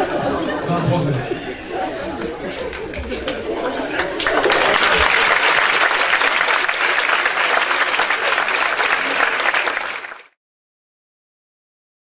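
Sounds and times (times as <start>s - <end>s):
audience applauding: 2.7s - 10.4s.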